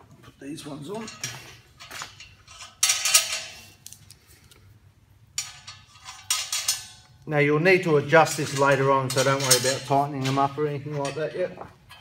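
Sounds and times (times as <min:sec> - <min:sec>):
metal parts clinking: 0:00.9 - 0:04.2, 0:05.4 - 0:07.2, 0:08.2 - 0:12.0.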